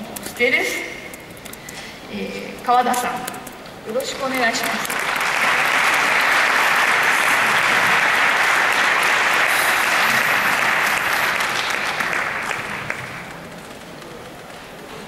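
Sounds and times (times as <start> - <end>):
audience applauding: 4.2 - 14.2.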